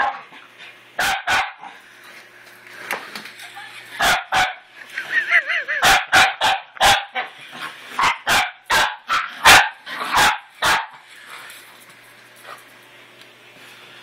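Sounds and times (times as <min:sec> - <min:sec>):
small dog barking sharply: 0:01.0 - 0:01.6, 0:04.0 - 0:04.6, 0:05.8 - 0:07.2, 0:08.0 - 0:11.0.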